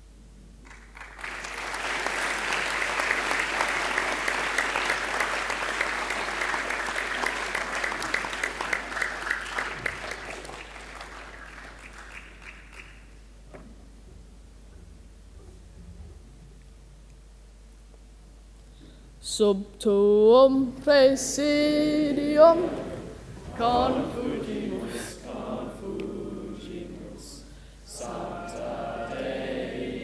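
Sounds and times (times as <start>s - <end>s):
audience applauding: 0.6s - 13.2s.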